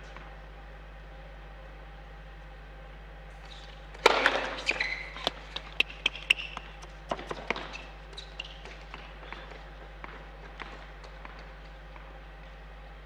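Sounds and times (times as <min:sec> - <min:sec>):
shoe squeaks on court: 0:03.4 - 0:09.6
tennis ball bouncing: 0:03.5 - 0:12.1
tennis ball hit: 0:04.0 - 0:07.6.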